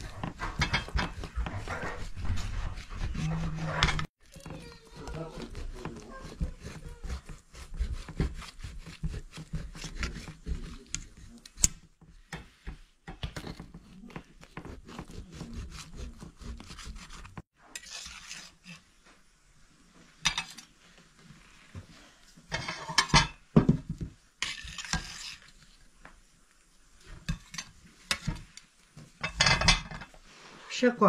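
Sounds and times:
scrapes on metal tray: 0.0s - 11.4s, 14.6s - 18.9s, 22.5s - 23.3s, 24.4s - 25.6s, 29.2s - 30.7s
knife crunching pizza crust: 0.0s - 11.8s, 13.4s - 18.8s.

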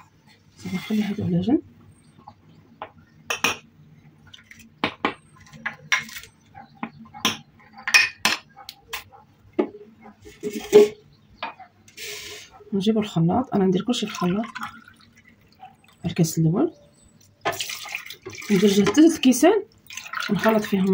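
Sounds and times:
glasses and bowls clinking on table: 3.3s - 3.7s, 4.8s - 8.5s.

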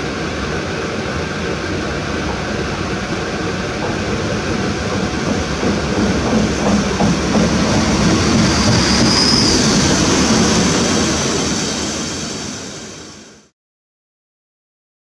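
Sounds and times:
diesel railcar passing: 0.0s - 13.5s
high-pitched wheel squeal: 8.2s - 11.8s.

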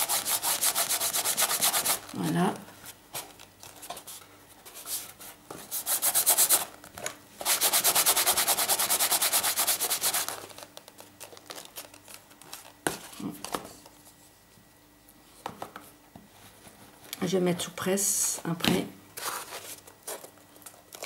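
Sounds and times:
rubbing on cardboard: 0.0s - 2.0s, 4.0s - 6.7s, 7.4s - 10.4s.

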